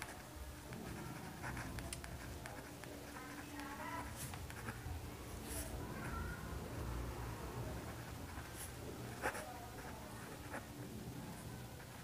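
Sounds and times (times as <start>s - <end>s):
pen scratching on paper: 0.0s - 4.9s, 7.8s - 10.7s.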